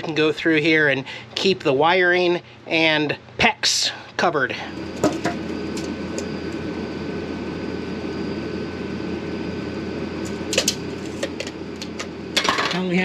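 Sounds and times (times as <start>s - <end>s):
steady mechanical hum: 0.0s - 13.0s
faint thin whine: 4.2s - 13.0s.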